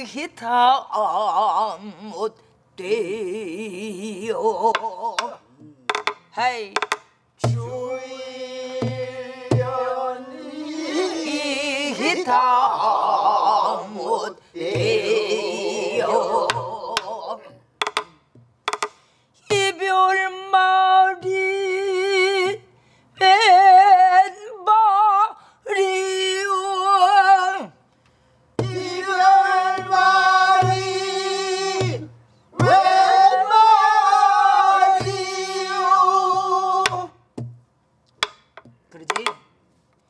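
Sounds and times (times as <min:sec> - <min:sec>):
woman singing with vibrato: 0:00.0 - 0:05.5, 0:07.6 - 0:17.5, 0:19.5 - 0:27.8
barrel drum thumps: 0:17.8 - 0:18.9, 0:29.7 - 0:31.0, 0:36.3 - 0:39.4.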